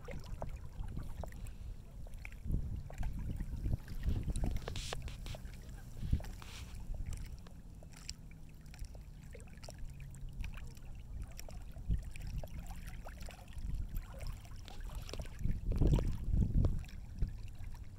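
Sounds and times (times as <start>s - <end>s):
wind rumbling on microphone: 0.0s - 7.7s, 9.9s - 17.9s.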